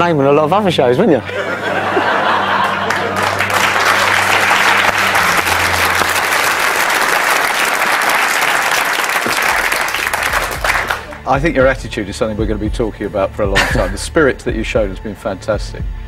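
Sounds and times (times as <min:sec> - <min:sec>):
audience applauding: 0:01.9 - 0:11.4.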